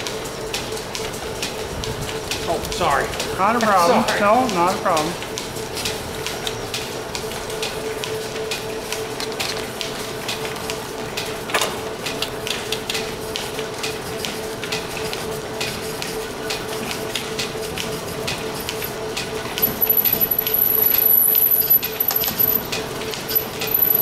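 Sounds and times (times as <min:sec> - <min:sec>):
lathe humming: 0:17.0 - 0:24.0.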